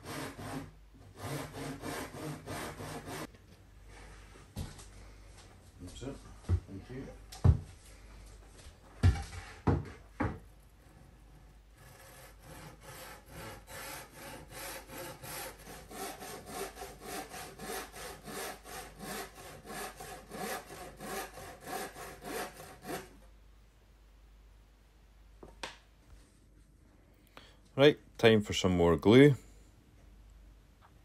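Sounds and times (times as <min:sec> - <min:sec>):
hand saw cutting plywood: 0:00.0 - 0:03.3, 0:10.3 - 0:23.2.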